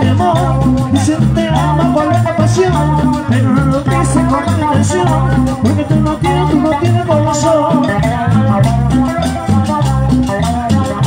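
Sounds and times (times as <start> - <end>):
live band playing latin dance music: 0.0 - 11.0.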